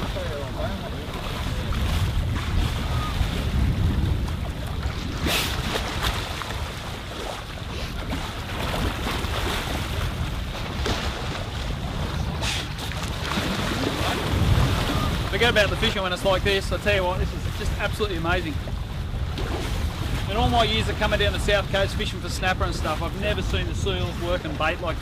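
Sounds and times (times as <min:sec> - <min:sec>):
animals splashing in water: 0:00.0 - 0:15.9
choppy sea water slapping: 0:00.0 - 0:25.0
wind buffeting microphone: 0:00.0 - 0:25.0.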